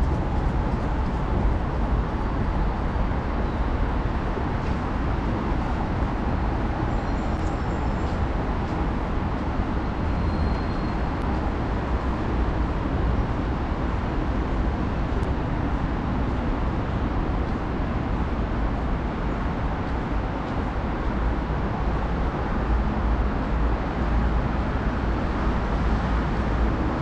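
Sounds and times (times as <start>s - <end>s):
urban traffic rumble: 0.0s - 27.0s.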